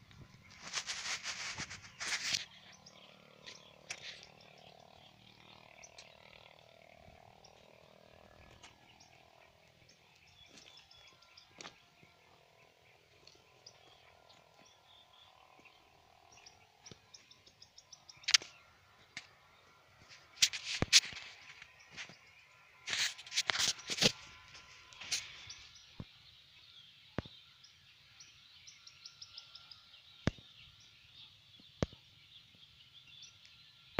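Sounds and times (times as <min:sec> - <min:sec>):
sharp clicks and rustles: 0:00.0 - 0:04.8, 0:20.0 - 0:22.2, 0:22.8 - 0:25.6
bird chirps: 0:00.0 - 0:33.9.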